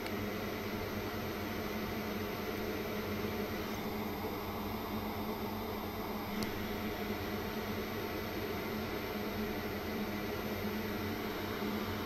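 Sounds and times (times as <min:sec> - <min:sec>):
electrical hum and fan whir: 0:00.0 - 0:12.0
faint click: 0:06.3 - 0:06.6.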